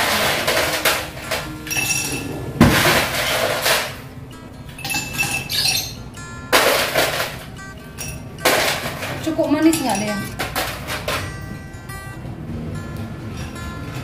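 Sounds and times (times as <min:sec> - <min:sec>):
ice cubes clinking into glasses: 0:00.0 - 0:04.0, 0:04.8 - 0:11.4.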